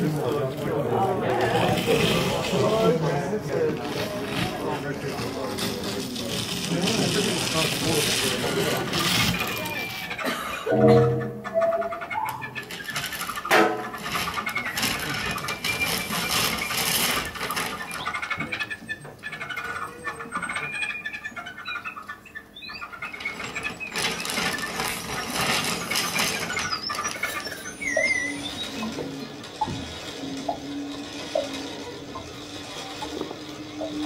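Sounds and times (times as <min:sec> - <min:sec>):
electronic squeals: 0:09.2 - 0:34.0.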